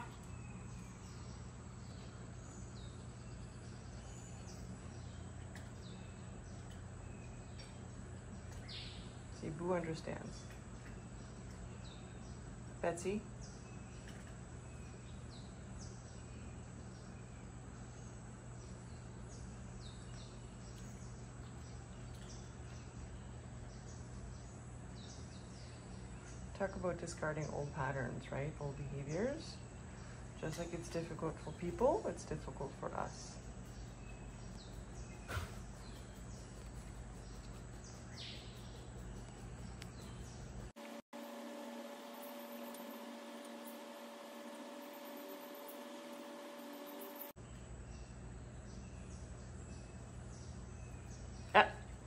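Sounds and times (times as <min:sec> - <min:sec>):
small bird chirping: 0:00.0 - 0:26.6, 0:27.2 - 0:40.8
steady low hum: 0:00.0 - 0:52.0.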